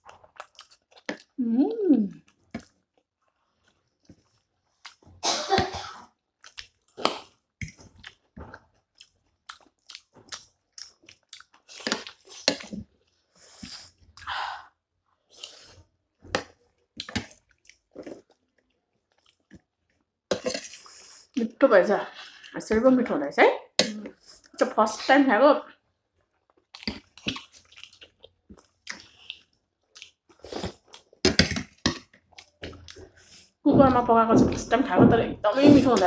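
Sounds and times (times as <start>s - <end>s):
wet chewing: 0.0s - 1.4s, 2.1s - 5.1s, 6.4s - 14.3s, 15.3s - 21.0s, 26.2s - 36.0s
slurping: 20.3s - 21.4s, 26.6s - 33.9s.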